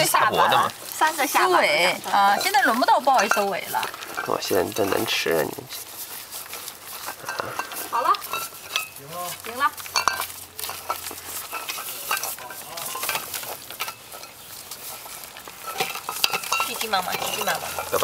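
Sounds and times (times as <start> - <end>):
muzzles clicking against metal bowls: 0.0 - 18.0
puppies chewing and lapping: 0.0 - 18.0.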